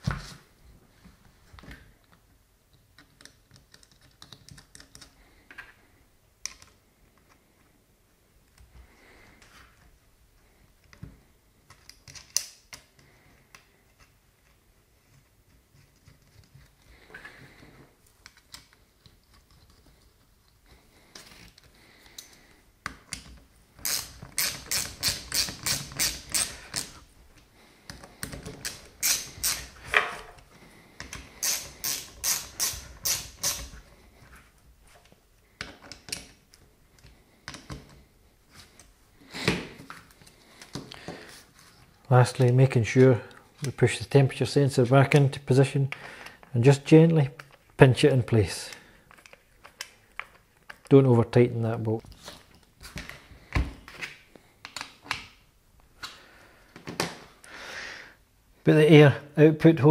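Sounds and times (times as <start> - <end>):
socket ratchet clicking: 23.8 - 26.9, 28.6 - 29.7, 31.4 - 33.7.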